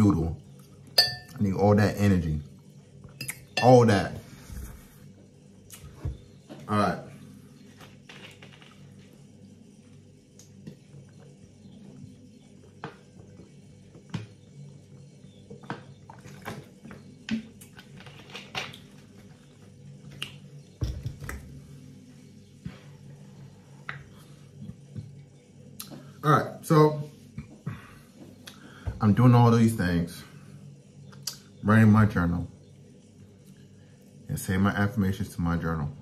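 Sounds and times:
utensil clinking against bowl: 1.0s - 1.4s.

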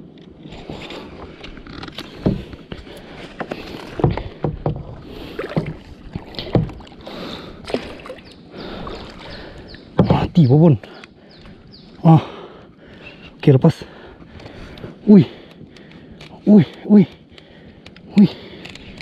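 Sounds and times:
paddle splashing in water: 1.9s - 10.3s.

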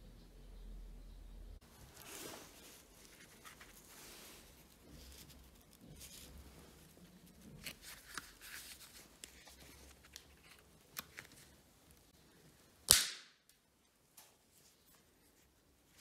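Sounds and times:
loud sharp crack: 12.9s - 13.4s.

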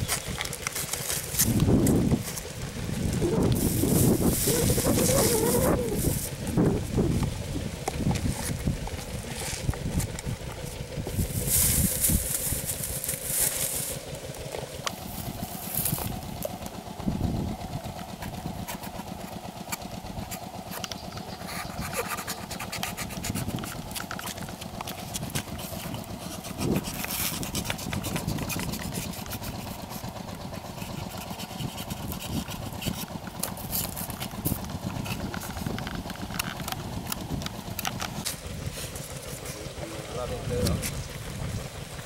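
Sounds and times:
knife cutting paper cups: 0.0s - 2.5s, 3.2s - 6.7s, 18.6s - 30.0s, 30.6s - 39.7s
cardboard and plastic crinkling: 0.0s - 6.5s, 8.0s - 14.0s.

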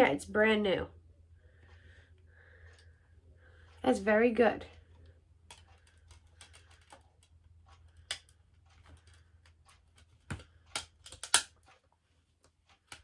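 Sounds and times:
plastic case clicking: 10.2s - 11.5s.

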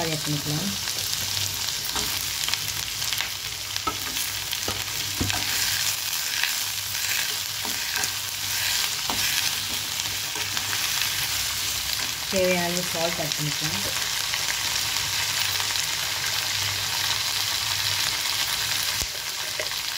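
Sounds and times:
food sizzling in hot oil: 0.0s - 19.9s
spoon clicking and scraping pan: 3.8s - 10.9s.

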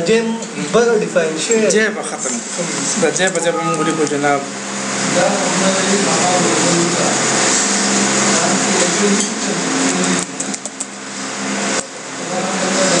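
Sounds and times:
sharp clicks: 10.2s - 11.0s.

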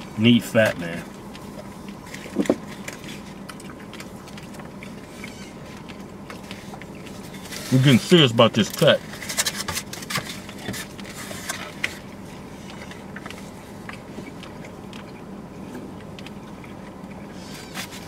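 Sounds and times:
low car cabin hum: 0.0s - 18.0s
person chewing: 1.1s - 7.8s, 9.2s - 18.0s
utensils scraping takeout containers: 7.3s - 12.0s.

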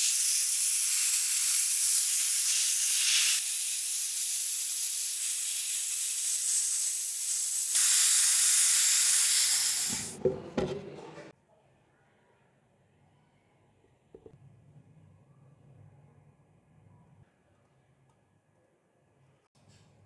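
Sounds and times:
blasting gun hissing on metal: 0.0s - 10.2s.

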